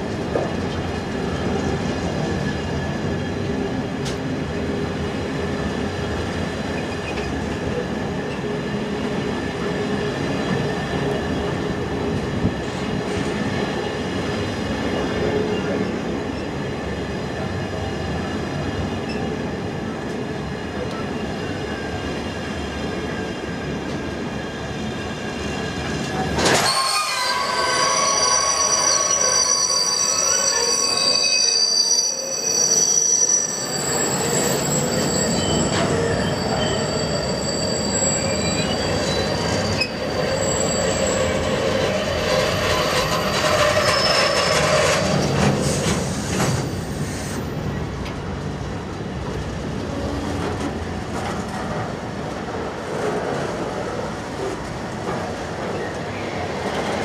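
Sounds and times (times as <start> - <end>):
freight train wheels rumbling: 0.0 - 32.0, 32.7 - 57.0
high-pitched wheel squeal: 26.4 - 45.2.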